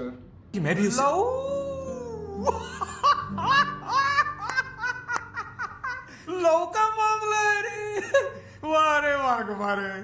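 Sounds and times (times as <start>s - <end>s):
background music: 0.8s - 9.0s
man laughing loudly: 2.2s - 6.2s.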